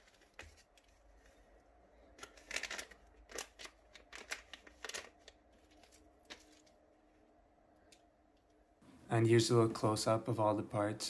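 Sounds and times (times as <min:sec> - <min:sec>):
plastic bag crinkling: 0:02.2 - 0:06.8.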